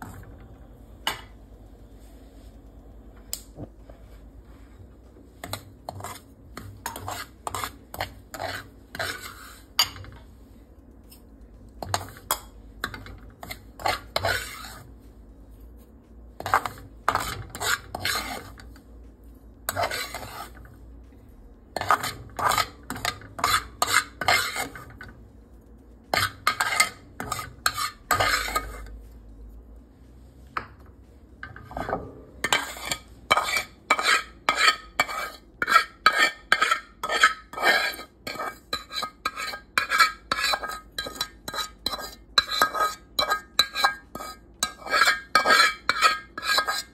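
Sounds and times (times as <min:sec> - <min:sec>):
metal spatula scraping metal pan: 0:05.4 - 0:10.2, 0:11.8 - 0:14.9, 0:16.4 - 0:18.8, 0:19.7 - 0:20.7, 0:21.8 - 0:25.1, 0:26.1 - 0:29.0, 0:31.4 - 0:46.9.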